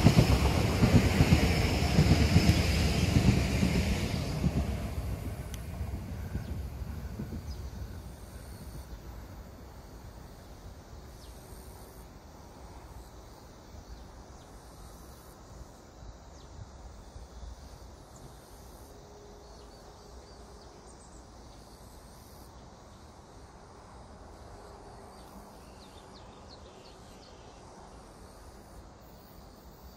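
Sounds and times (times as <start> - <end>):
train low rumble: 0.0 - 13.0
insects: 0.0 - 29.9.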